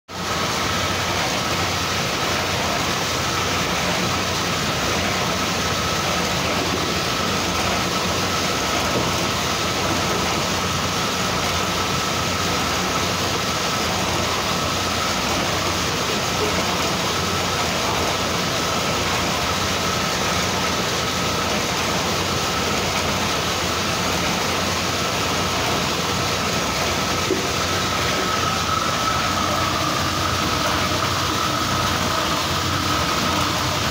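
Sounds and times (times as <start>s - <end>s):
oil press mechanical din: 0.1s - 33.9s
thin steady whine: 0.1s - 33.9s.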